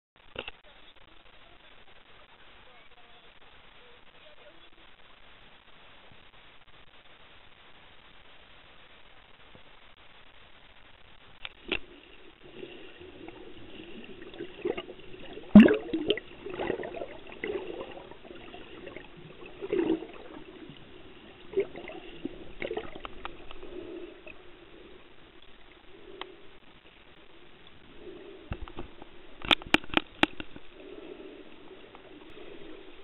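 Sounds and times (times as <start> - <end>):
muffled underwater noise: 0.2 - 33.0
gurgling bubbles: 11.6 - 26.3
sharp clicks and knocks: 28.5 - 30.7.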